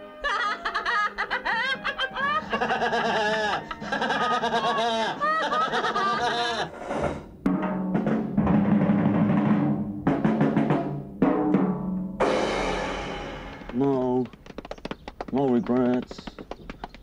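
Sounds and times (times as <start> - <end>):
drum kit played with sticks: 6.6 - 14.3
low music tones: 6.7 - 14.2.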